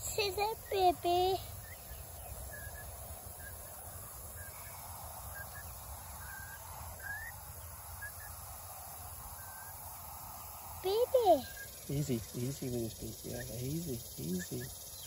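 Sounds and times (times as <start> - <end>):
faint background noise: 0.0 - 15.0.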